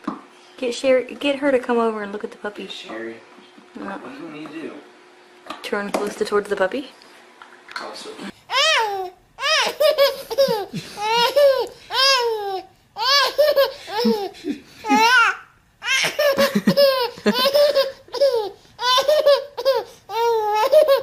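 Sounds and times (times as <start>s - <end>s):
baby laughing: 8.5s - 21.0s.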